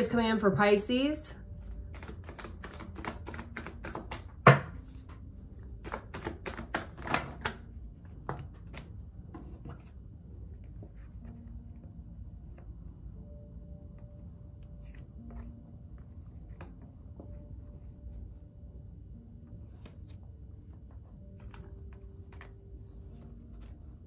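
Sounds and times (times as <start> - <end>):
cards shuffling: 1.6 - 10.0, 20.8 - 23.8.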